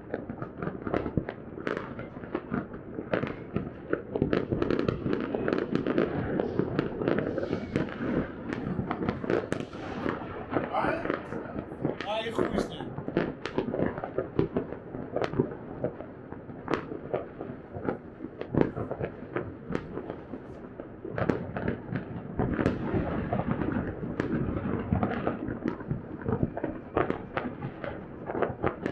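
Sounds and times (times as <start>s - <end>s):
fireworks bangs: 0.0s - 28.9s
rumbling crackle: 0.0s - 28.9s.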